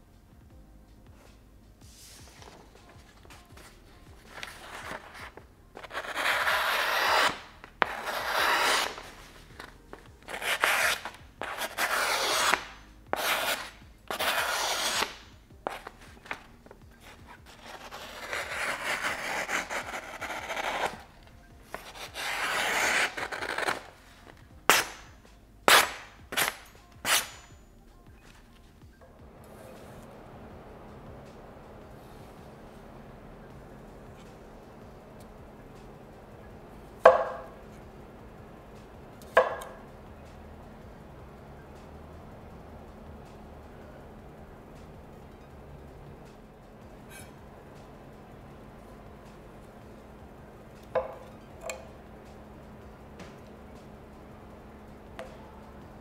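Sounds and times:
knife slicing through paper: 0:04.3 - 0:09.5, 0:10.3 - 0:16.0, 0:17.0 - 0:21.0, 0:21.7 - 0:23.9.

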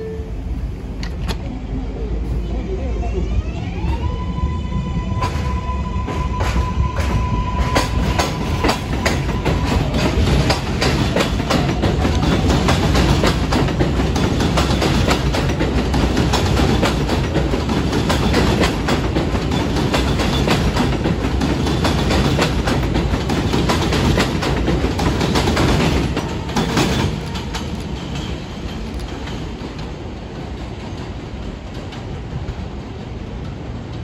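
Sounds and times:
faint train rumble: 0:00.0 - 0:34.0
train wheels clattering over rails: 0:05.2 - 0:34.0.

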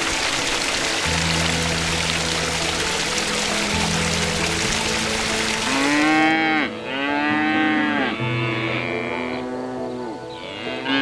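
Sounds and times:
rushing water-like noise: 0:00.0 - 0:06.6
background music: 0:00.0 - 0:11.0
cow mooing: 0:05.7 - 0:11.0.

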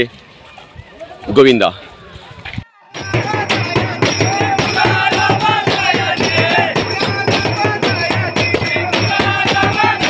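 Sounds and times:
large drum beaten with stick: 0:03.0 - 0:10.0
men chanting together: 0:03.0 - 0:10.0
people clapping: 0:03.0 - 0:10.0.

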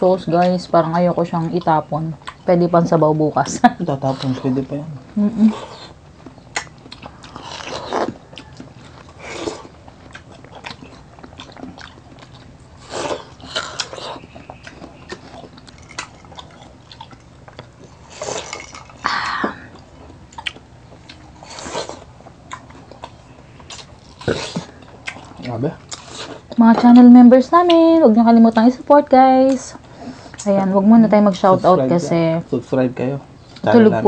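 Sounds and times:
people chewing watermelon: 0:00.0 - 0:34.0
mouth clicks: 0:05.5 - 0:08.6.

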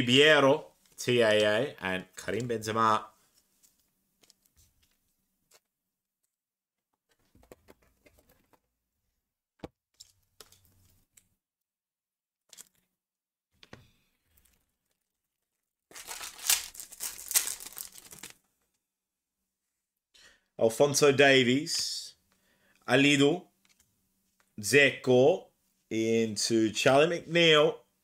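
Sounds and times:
faint taps and rustles of handling: 0:03.2 - 0:05.7, 0:06.9 - 0:08.8, 0:23.6 - 0:24.6
foil wrapper ripping: 0:15.9 - 0:18.4.

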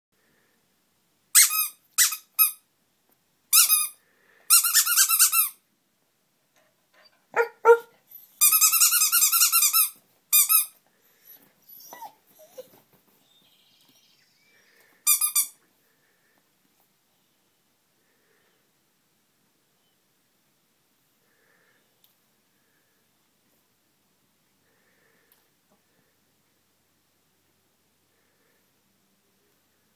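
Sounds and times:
dog whining: 0:07.0 - 0:08.9, 0:11.2 - 0:13.5
dog barking: 0:07.3 - 0:08.0.

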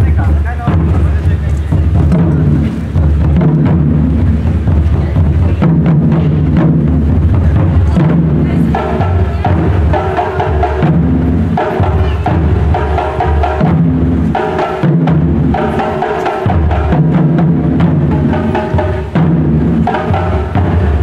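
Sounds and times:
ensemble beating barrel drums: 0:00.0 - 0:21.0.

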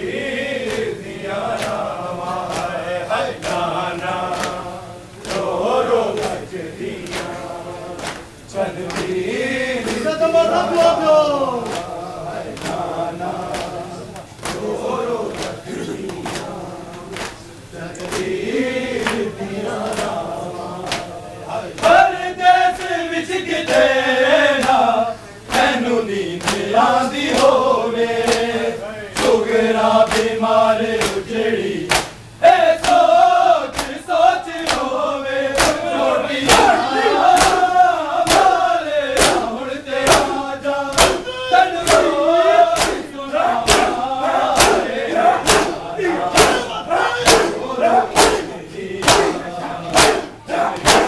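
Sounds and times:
men chanting together: 0:00.0 - 0:51.0
hands slapping chests: 0:13.5 - 0:14.7, 0:26.4 - 0:26.6, 0:31.9 - 0:32.2, 0:32.8 - 0:33.0, 0:33.7 - 0:34.0, 0:35.6 - 0:35.8, 0:37.4 - 0:37.6, 0:39.2 - 0:39.4, 0:40.0 - 0:41.2, 0:41.8 - 0:42.1, 0:42.8 - 0:43.0, 0:43.6 - 0:51.0.

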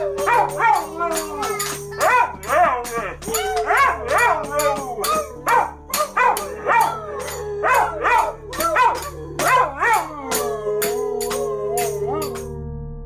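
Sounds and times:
dog howling yelps: 0:00.0 - 0:12.4
background music with tambourine beat: 0:00.0 - 0:12.6.

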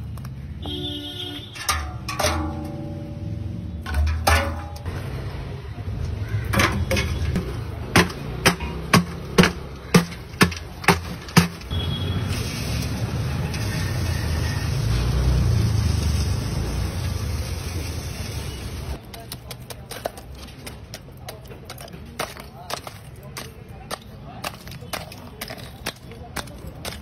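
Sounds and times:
ice dropping into metal barrel: 0:03.8 - 0:04.9, 0:06.4 - 0:11.8
wooden pole ramming ice: 0:06.5 - 0:11.8.

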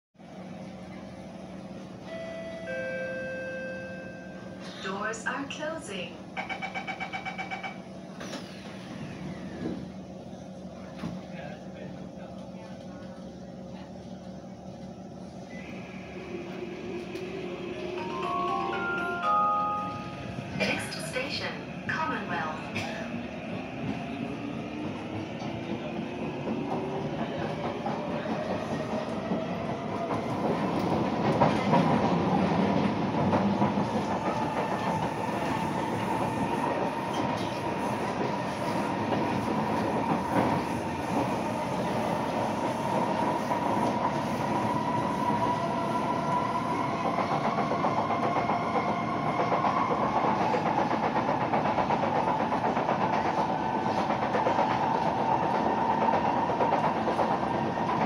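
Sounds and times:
wheels clattering on rails: 0:46.3 - 0:58.0.

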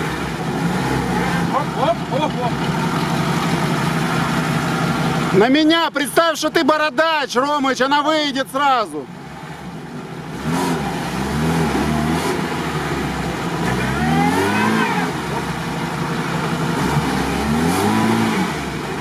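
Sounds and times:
engine revving hard: 0:00.0 - 0:05.5, 0:10.3 - 0:19.0.

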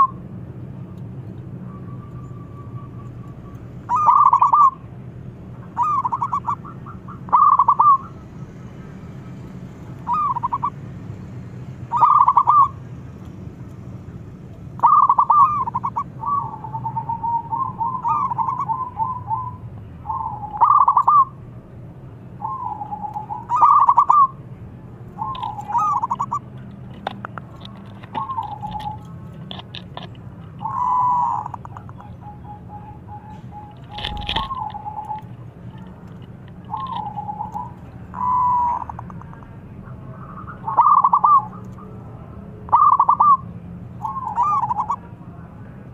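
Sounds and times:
dove cooing: 0:00.0 - 0:00.2, 0:02.2 - 0:04.9, 0:05.6 - 0:08.3, 0:10.0 - 0:10.8, 0:11.9 - 0:12.8, 0:14.8 - 0:21.4, 0:22.4 - 0:24.4, 0:25.2 - 0:45.1
sharp clicks: 0:33.7 - 0:37.9.

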